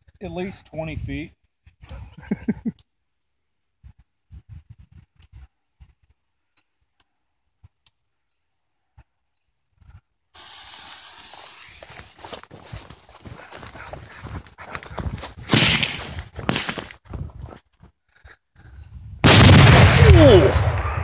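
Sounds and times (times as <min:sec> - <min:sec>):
fuse hissing: 0:10.4 - 0:12.3
footsteps through grass: 0:10.4 - 0:17.8.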